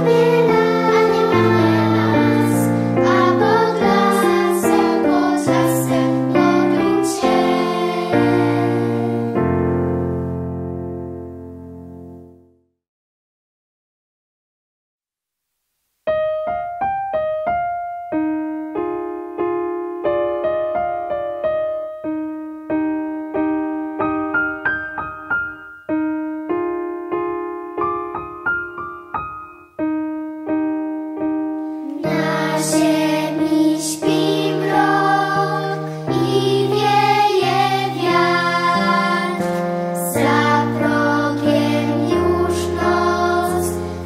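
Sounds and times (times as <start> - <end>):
children's choir singing: 0.0 - 9.8, 31.8 - 44.0
piano playing: 0.0 - 12.6, 16.1 - 44.0.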